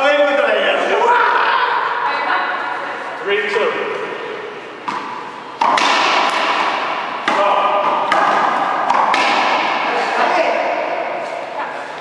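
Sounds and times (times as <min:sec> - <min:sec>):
racquetball hits ringing: 0:04.8 - 0:11.2.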